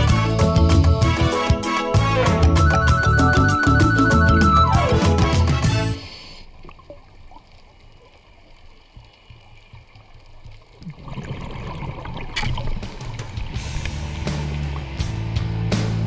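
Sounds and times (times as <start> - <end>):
underwater rumble of moving water: 6.2 - 15.7.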